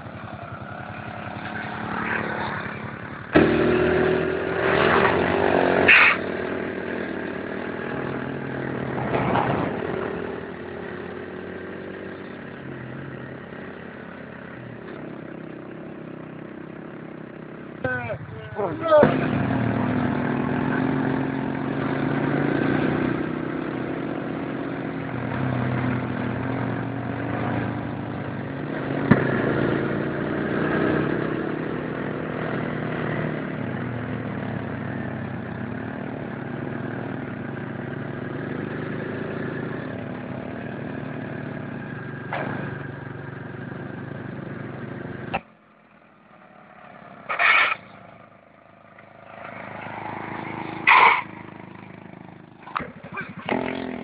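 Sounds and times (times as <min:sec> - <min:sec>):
motorcycle engines humming: 0:00.0 - 0:54.0.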